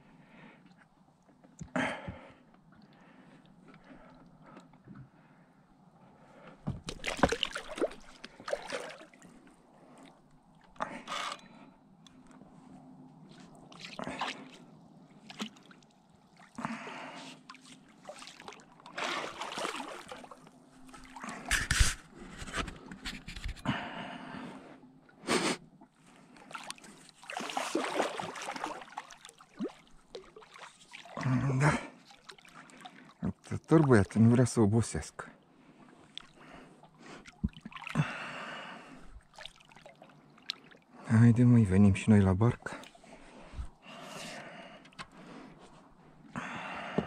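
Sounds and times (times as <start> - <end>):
water splashing: 6.8 - 9.4, 13.7 - 16.7, 17.4 - 22.0, 26.4 - 34.2, 37.2 - 38.0, 39.2 - 40.8
person breathing heavily: 38.0 - 39.2, 43.0 - 47.0.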